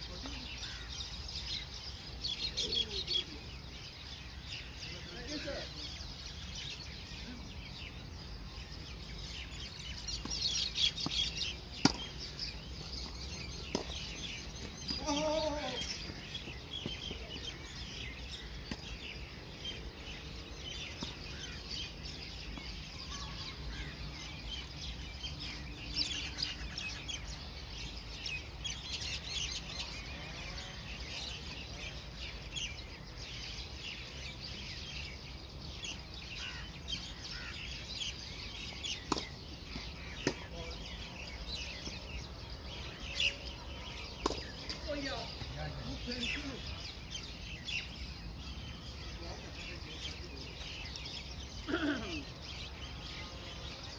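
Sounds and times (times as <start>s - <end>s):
birds chirping and calling: 0.0s - 53.9s.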